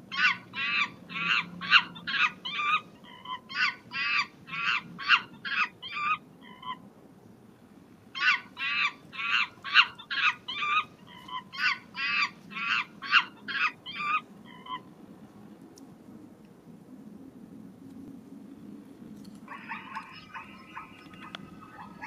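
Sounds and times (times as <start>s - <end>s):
chimpanzee high-pitched cries: 0.1s - 6.8s, 8.2s - 14.9s, 19.5s - 22.0s.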